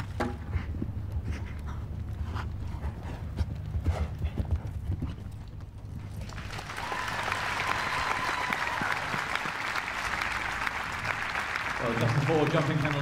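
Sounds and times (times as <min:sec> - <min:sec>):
horse hoofbeats on turf: 0:00.0 - 0:06.3
crowd applause: 0:06.1 - 0:13.0.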